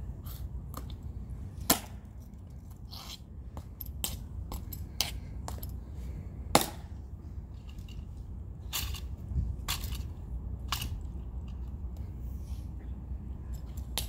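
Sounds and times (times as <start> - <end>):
steady low rumble: 0.0 - 14.0
metal-tapped shoes clicking on stone: 1.7 - 5.8.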